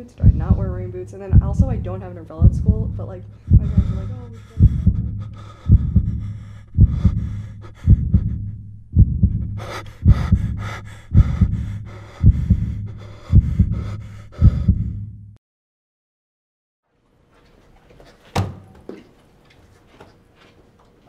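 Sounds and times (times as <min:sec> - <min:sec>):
heartbeat double thump: 0:00.2 - 0:15.4.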